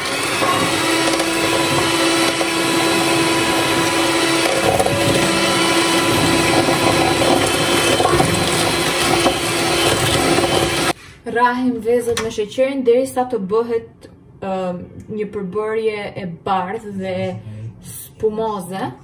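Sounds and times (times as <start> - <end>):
electric hand mixer whipping: 0.0 - 11.0.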